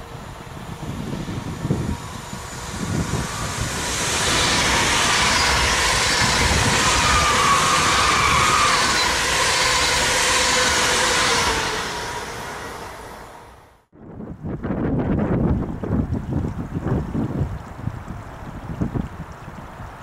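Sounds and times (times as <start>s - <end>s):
wind gusts on microphone: 0.0s - 12.8s, 13.9s - 20.0s
faint high whine: 0.0s - 13.8s
train wheels rushing on rail: 0.0s - 13.9s.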